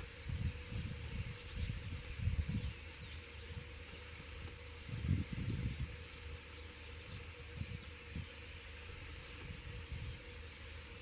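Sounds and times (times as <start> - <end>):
flock of starlings chattering: 0.0 - 11.0
wind buffeting microphone: 0.0 - 11.0.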